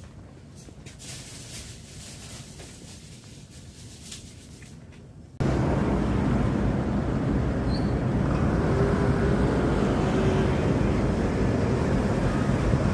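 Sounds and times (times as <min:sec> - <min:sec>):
city street traffic rumble: 0:00.0 - 0:12.9.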